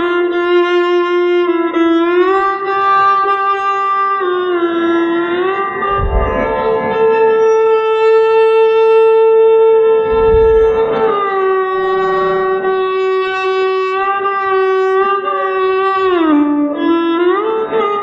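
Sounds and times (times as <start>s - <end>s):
low thuds: 5.5s - 7.8s, 10.1s - 13.5s
solo violin slow bowed notes: 9.9s - 18.0s.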